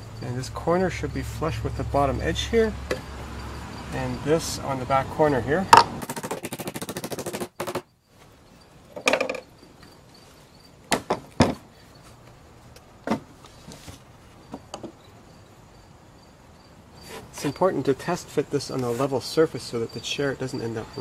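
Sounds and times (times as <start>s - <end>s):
hollow wooden knocks and thumps: 5.7s - 7.9s, 9.0s - 9.5s, 10.9s - 11.7s, 13.0s - 15.0s.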